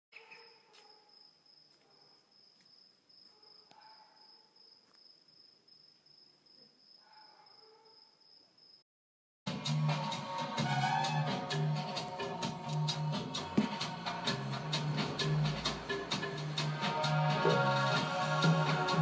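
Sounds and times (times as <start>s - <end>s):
cricket chirping: 0.2s - 8.8s.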